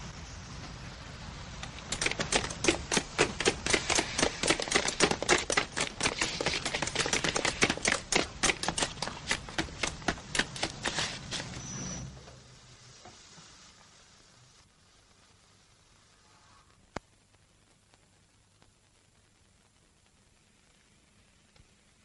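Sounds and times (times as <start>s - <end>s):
rapid sharp clicks: 1.6s - 11.2s.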